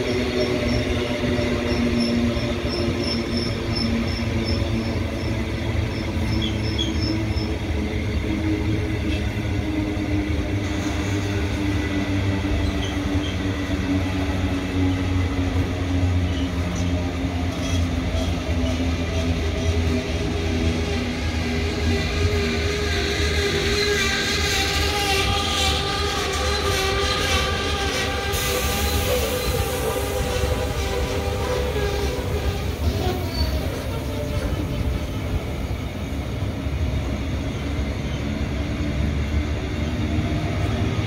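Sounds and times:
train wheels rumbling on rails: 0.0s - 41.0s
wheels squealing: 22.5s - 35.3s.

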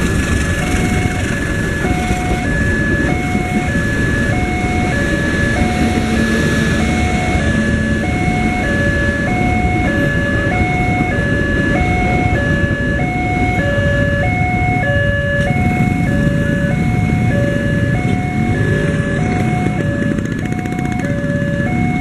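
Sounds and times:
train rumbling past: 0.0s - 13.4s
two-tone crossing alarm: 0.0s - 22.0s.

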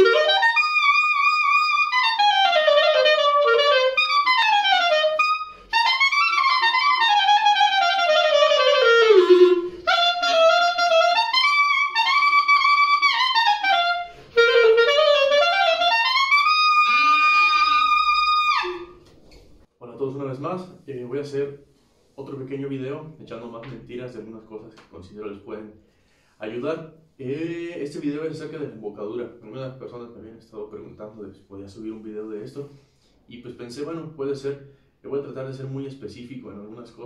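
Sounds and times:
solo clarinet playing: 0.0s - 19.0s.

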